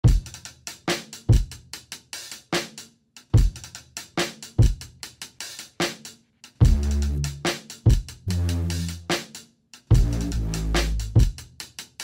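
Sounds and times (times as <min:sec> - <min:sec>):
drum beat: 0:03.3 - 0:06.0, 0:06.6 - 0:12.0.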